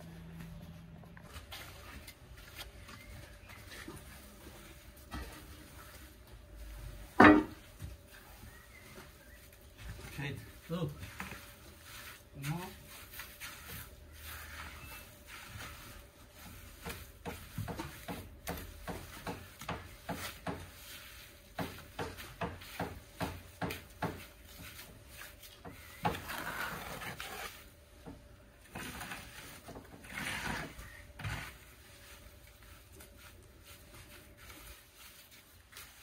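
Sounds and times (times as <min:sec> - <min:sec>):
hand tools scraping gravel: 0:07.5 - 0:27.8, 0:28.6 - 0:36.0.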